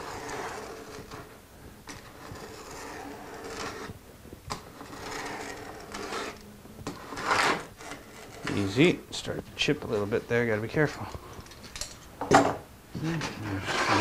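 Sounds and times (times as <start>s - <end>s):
knife scoring wood veneer: 0.0s - 1.2s, 4.8s - 8.7s
faint steady hum: 0.0s - 14.0s.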